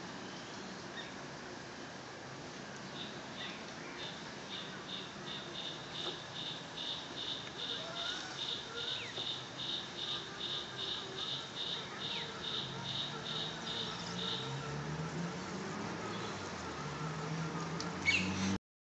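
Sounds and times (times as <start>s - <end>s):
insect chirping: 2.9s - 14.7s.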